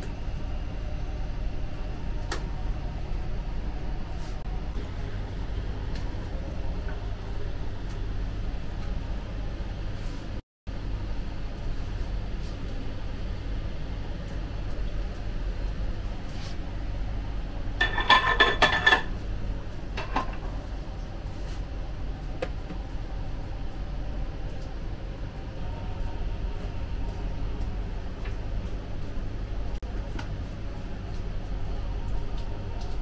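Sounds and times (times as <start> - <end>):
low kitchen hum: 0.0 - 33.0
metal clanking and clinking: 17.8 - 19.1.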